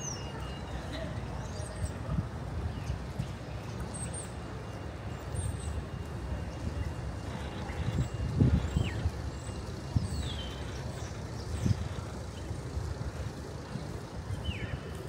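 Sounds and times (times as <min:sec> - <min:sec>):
low town rumble: 0:00.0 - 0:15.0
small birds chirping: 0:07.2 - 0:15.0.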